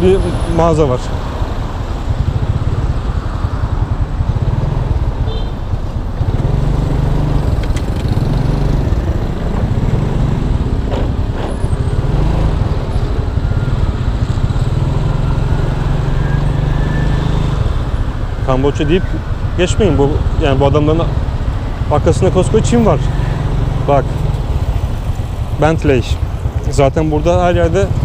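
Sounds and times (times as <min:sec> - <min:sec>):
road and wind noise: 0:00.0 - 0:28.0
scooter engine revving: 0:03.7 - 0:18.2.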